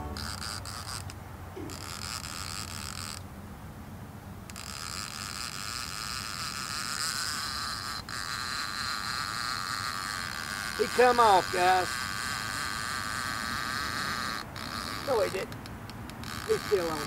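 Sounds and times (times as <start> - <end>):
low steady rumble: 0.0 - 1.6
fishing reel line clicker buzzing: 0.0 - 3.3, 4.5 - 17.0.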